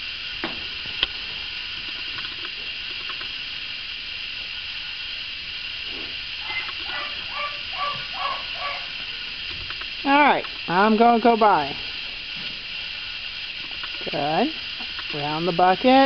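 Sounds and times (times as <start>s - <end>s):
steady background hiss: 0.0s - 16.0s
faint short pitched calls: 6.4s - 9.0s.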